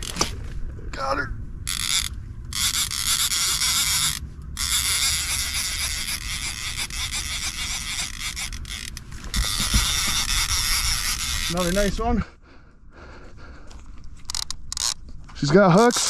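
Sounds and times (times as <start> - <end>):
fishing reel clicking: 1.7 - 12.0, 14.2 - 15.0.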